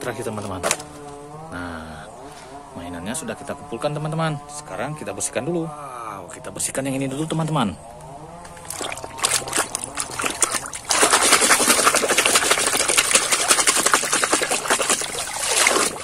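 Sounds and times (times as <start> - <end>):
water splashing in a basin: 8.5 - 16.0.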